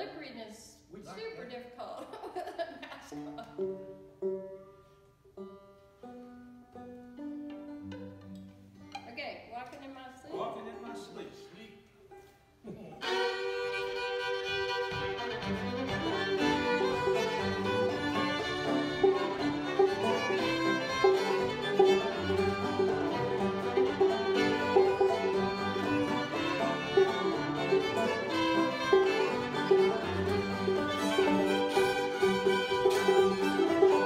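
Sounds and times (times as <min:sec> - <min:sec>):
banjo: 0:03.0 - 0:09.2, 0:12.1 - 0:34.0
acoustic guitar: 0:03.1 - 0:09.8, 0:12.1 - 0:34.0
fiddles playing: 0:13.0 - 0:34.0.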